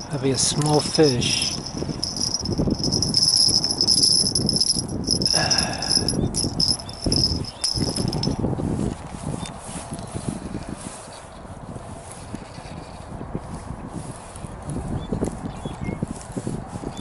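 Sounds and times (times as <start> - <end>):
wind buffeting microphone: 0.0 - 17.0
fishing reel whine: 1.1 - 8.4.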